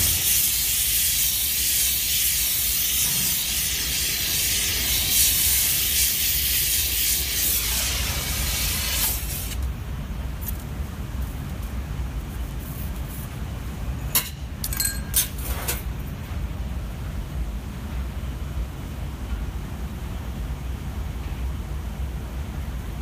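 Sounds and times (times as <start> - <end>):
gas torch flame hissing: 0.0 - 9.7.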